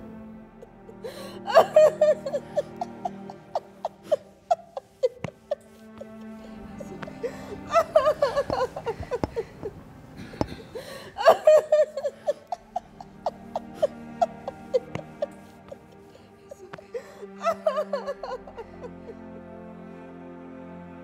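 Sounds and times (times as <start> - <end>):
soft background music: 0.0 - 21.0
woman sobbing: 0.6 - 19.2.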